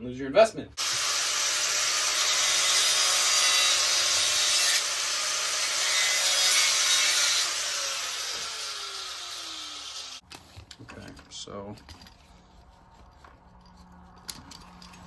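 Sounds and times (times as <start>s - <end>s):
electric grinder cutting metal: 0.8s - 10.2s.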